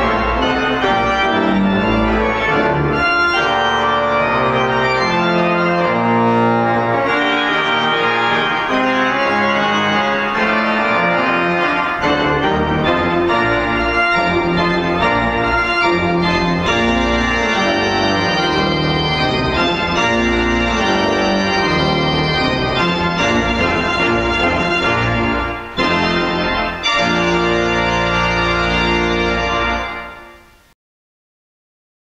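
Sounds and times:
church organ chords: 0.0 - 30.6.

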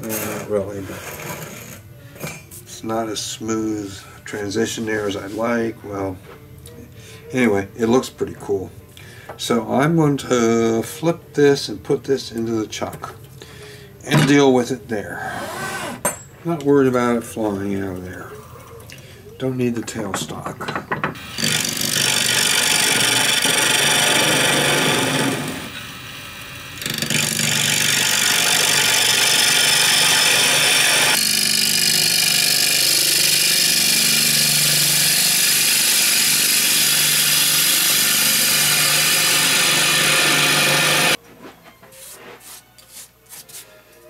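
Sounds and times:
lathe hum: 21.2 - 41.2
gouge cutting wood hiss: 28.0 - 41.2.

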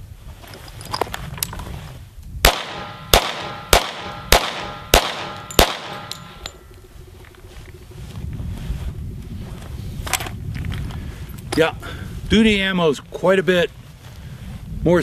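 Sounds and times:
handgun shots: 2.5 - 6.5.

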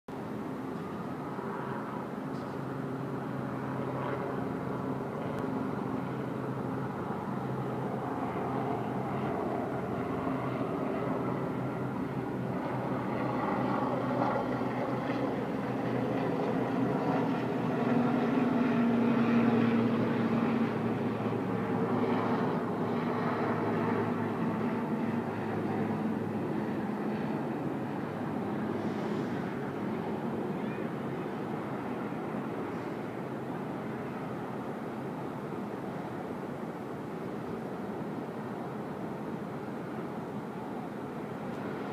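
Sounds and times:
city engine noise hum: 0.1 - 41.9.

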